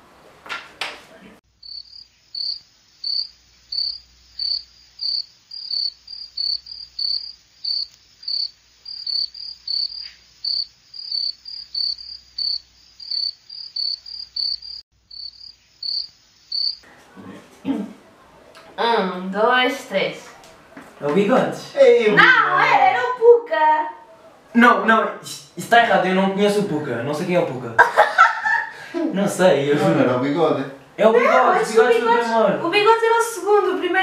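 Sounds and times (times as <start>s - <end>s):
cricket chirping: 1.5s - 16.9s.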